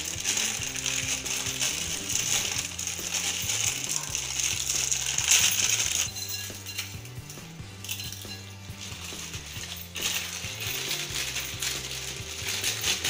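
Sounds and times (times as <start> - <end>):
plastic packet crinkling: 0.0 - 6.2, 8.8 - 13.0.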